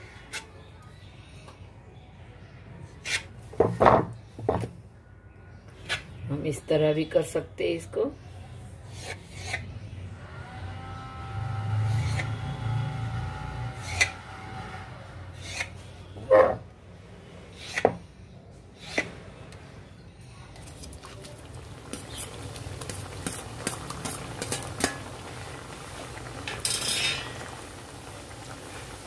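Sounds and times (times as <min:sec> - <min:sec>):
dough deep-frying in hot oil: 0:11.4 - 0:15.8, 0:20.5 - 0:29.0.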